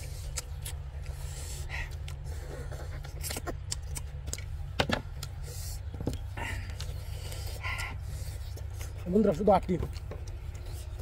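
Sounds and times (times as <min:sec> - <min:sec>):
people chewing meat: 0:00.0 - 0:11.0
steady low hum: 0:00.0 - 0:11.0
wet clicks and smacks: 0:03.2 - 0:05.4.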